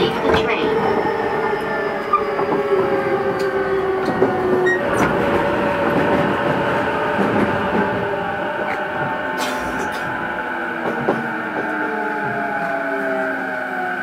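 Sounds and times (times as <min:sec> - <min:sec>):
rail rumble: 0:00.0 - 0:14.0.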